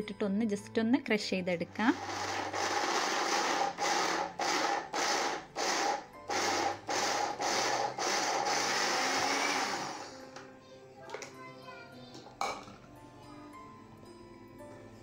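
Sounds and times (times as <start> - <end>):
mixer grinder crushing coconut: 1.9 - 10.2.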